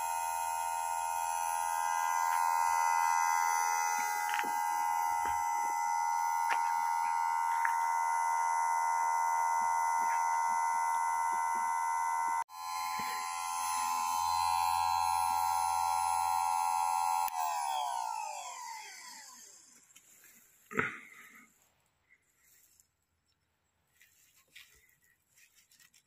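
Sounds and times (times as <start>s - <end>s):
grinder motor high-pitched whine: 0.0s - 20.0s.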